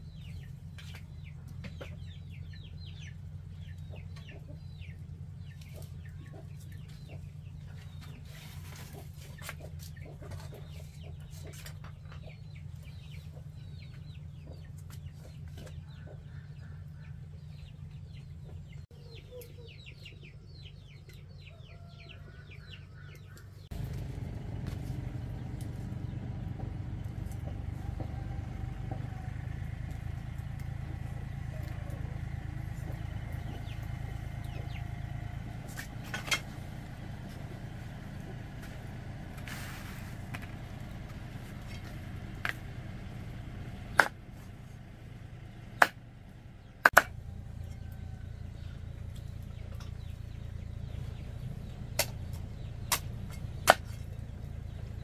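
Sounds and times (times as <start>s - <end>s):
chickens clucking: 0.1s - 55.0s
steady low hum: 23.6s - 55.0s
motor drone: 23.7s - 40.3s.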